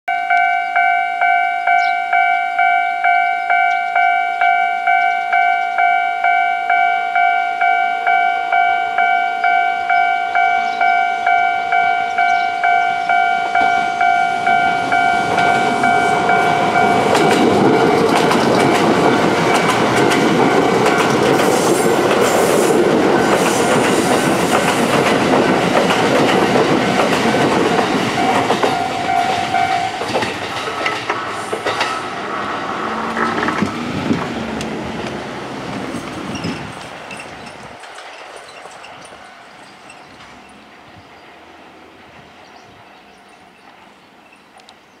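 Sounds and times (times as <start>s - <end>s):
level crossing alarm bell ringing: 0.1s - 21.4s, 28.1s - 30.2s
electric train passing: 0.1s - 45.0s.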